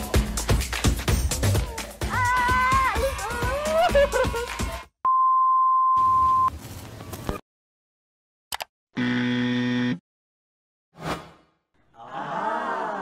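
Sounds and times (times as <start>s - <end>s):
click: 8.5s - 8.7s.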